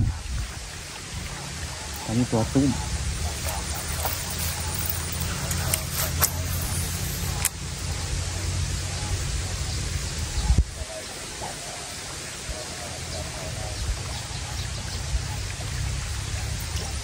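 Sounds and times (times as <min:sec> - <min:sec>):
wind buffeting microphone: 0:00.0 - 0:11.5.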